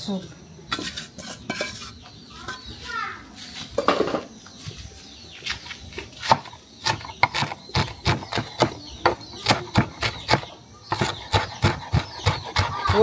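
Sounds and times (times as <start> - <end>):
knife chopping on wooden board: 6.2 - 13.0.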